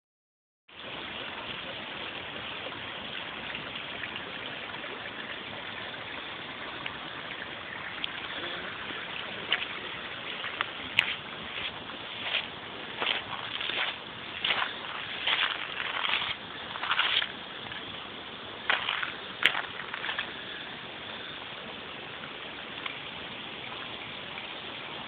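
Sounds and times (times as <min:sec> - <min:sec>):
waterfall rushing over rocks: 0:05.3 - 0:25.0.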